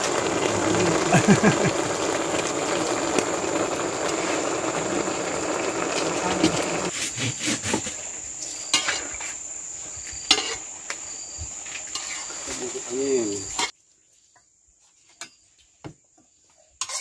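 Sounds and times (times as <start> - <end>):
pot of greens boiling: 0.0 - 8.2.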